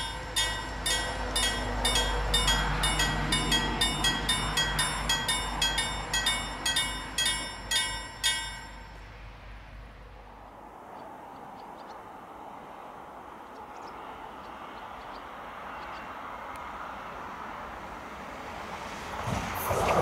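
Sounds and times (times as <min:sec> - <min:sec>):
level-crossing bell ringing: 0:00.0 - 0:09.0.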